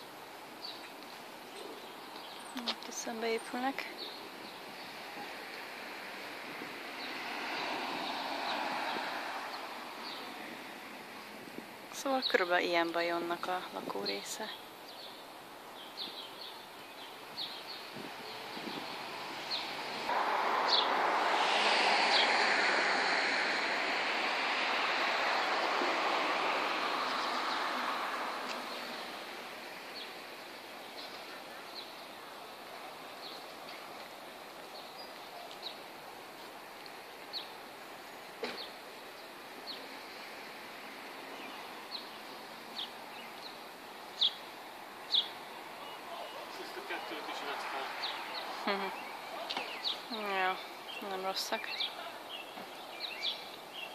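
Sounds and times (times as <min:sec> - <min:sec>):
vehicle passing: 0:02.8 - 0:13.7, 0:17.4 - 0:35.1, 0:39.4 - 0:53.9
bird chirps: 0:44.2 - 0:44.5, 0:48.0 - 0:53.9.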